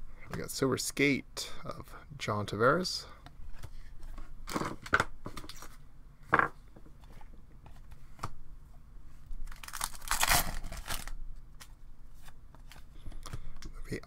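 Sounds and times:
cards and foil wrappers crinkling: 9.4s - 11.2s.

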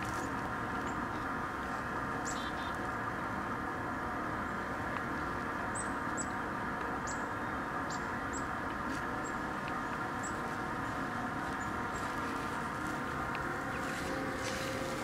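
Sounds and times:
exhaust vent rushing hum: 0.0s - 15.0s
small birds chirping: 2.2s - 3.0s, 4.4s - 14.6s.

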